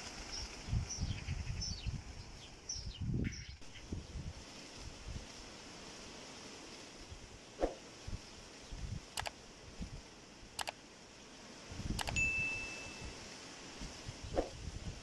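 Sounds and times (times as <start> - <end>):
light metallic clinks: 12.0 - 13.1
clear ringing ding: 12.2 - 13.1.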